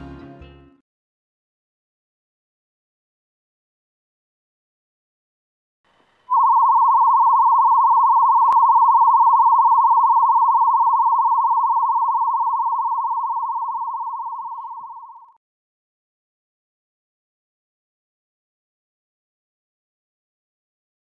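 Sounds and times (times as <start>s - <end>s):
warble calibration tone: 6.3s - 15.4s.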